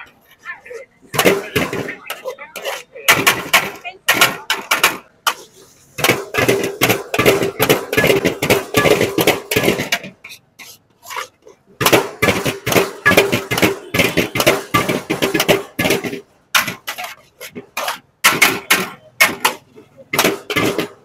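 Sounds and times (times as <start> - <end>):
metal ladle scraping a wok: 1.7 - 3.0, 5.3 - 18.2.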